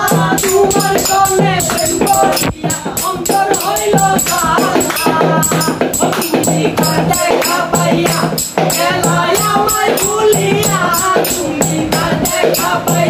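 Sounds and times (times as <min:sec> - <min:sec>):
handclaps: 0:00.0 - 0:12.8
hand percussion: 0:00.0 - 0:13.0
men singing together: 0:00.0 - 0:13.0.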